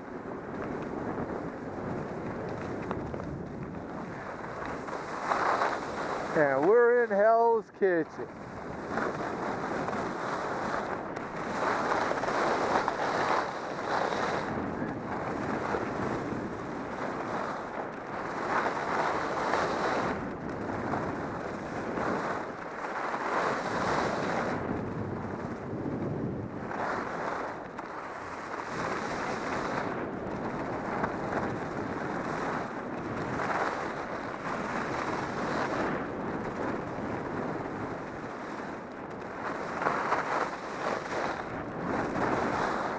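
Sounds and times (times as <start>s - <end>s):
skis scraping over snow: 0.0s - 42.9s
wind buffeting microphone: 0.0s - 42.9s.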